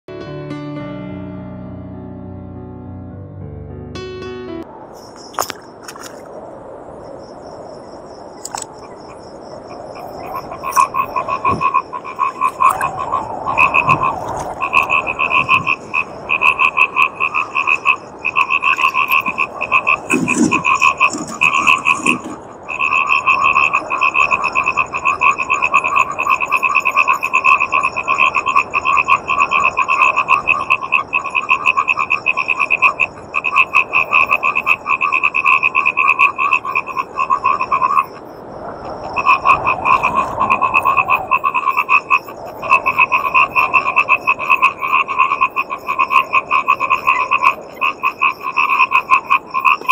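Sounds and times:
frogs croaking: 4.8s - 49.9s.

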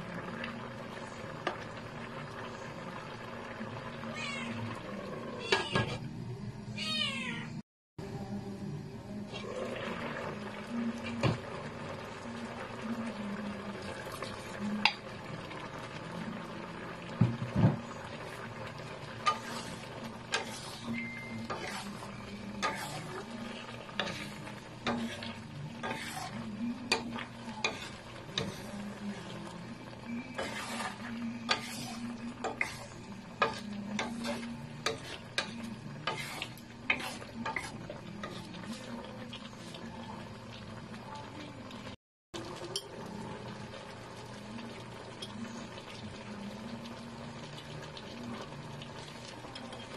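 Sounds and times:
coconut milk simmering: 0.0s - 5.5s, 9.3s - 49.9s
spatula scraping a pan: 19.2s - 29.3s, 30.1s - 39.9s.

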